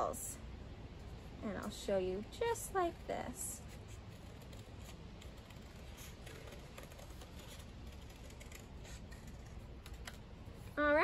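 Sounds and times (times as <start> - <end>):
scissors snipping paper: 3.6 - 10.3
paper rustling: 3.6 - 10.7.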